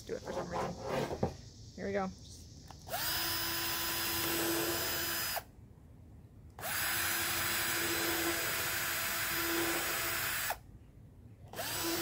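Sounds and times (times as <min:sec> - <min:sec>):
cordless drill boring wood: 0:02.9 - 0:05.4, 0:06.6 - 0:10.6, 0:11.5 - 0:12.0.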